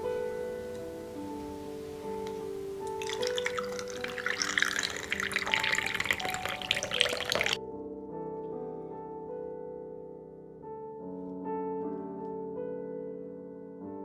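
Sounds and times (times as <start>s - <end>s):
soft piano music: 0.0s - 14.0s
drink pouring over ice: 2.9s - 7.6s.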